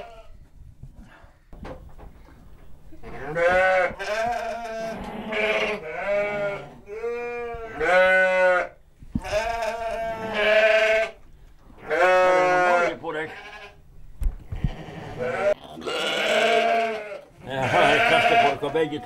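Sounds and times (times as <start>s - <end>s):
lambs bleating: 3.1s - 11.2s, 11.8s - 13.8s, 14.6s - 19.0s.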